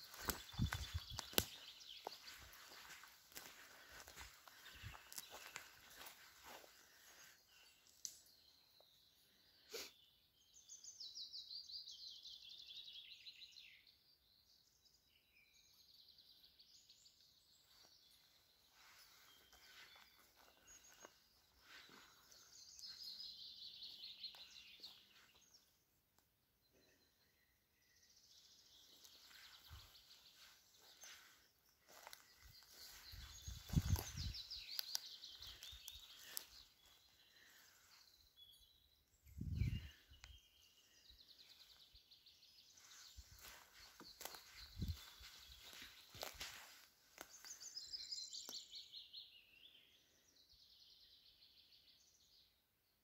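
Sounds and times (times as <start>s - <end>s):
songbird singing: 0.0s - 53.0s.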